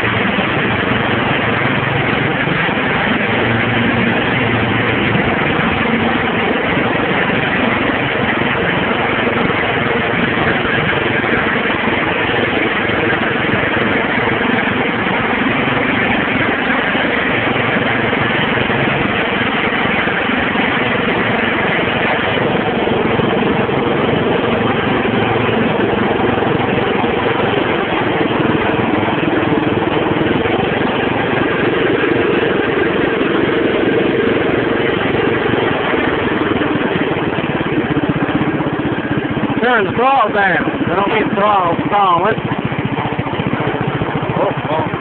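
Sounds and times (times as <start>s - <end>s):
tractor engine running: 0.0s - 45.0s.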